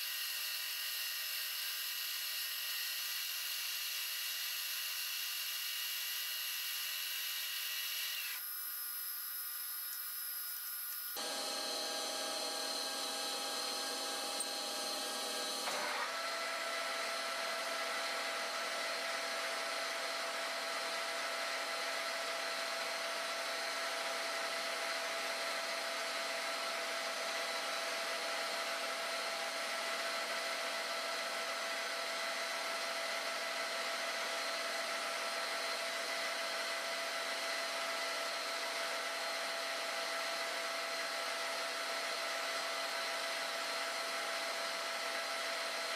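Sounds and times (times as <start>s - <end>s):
metal lathe humming: 11.2s - 16.4s.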